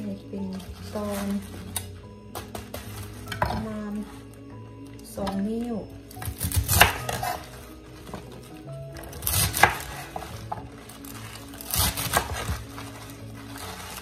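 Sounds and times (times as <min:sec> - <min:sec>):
soft background music: 0:00.0 - 0:14.0
knife chopping on wooden board: 0:06.2 - 0:07.4, 0:09.0 - 0:10.6, 0:11.7 - 0:12.6.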